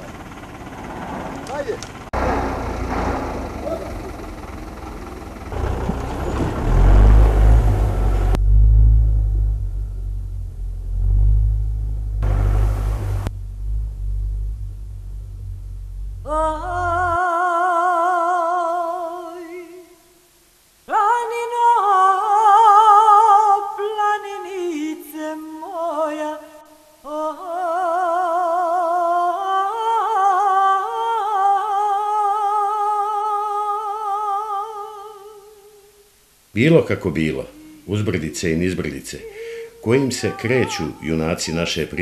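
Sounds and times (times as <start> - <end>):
truck engine rumbling: 0.0 - 17.4
person singing with vibrato: 16.2 - 20.2, 20.8 - 36.2, 37.1 - 42.0.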